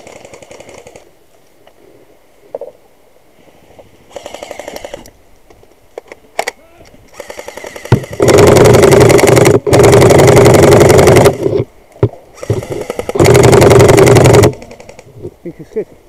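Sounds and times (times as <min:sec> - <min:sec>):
airsoft rifle full-auto fire: 0:07.1 - 0:11.6, 0:12.4 - 0:15.0.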